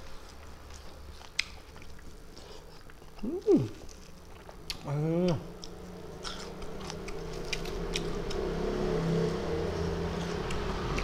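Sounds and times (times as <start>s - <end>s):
chewing: 0.0s - 8.6s, 9.2s - 11.0s
low hum: 3.2s - 11.0s.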